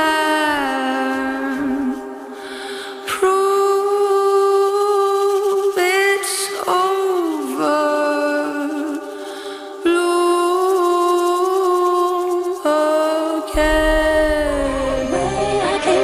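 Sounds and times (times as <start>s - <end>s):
person singing long notes: 9.9s - 16.0s.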